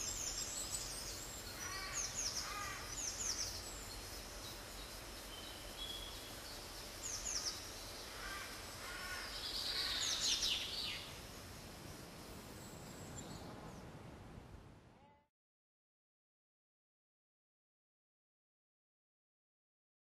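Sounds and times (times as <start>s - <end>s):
songbirds chirping: 0.0s - 14.6s
steady background hiss: 0.0s - 15.2s.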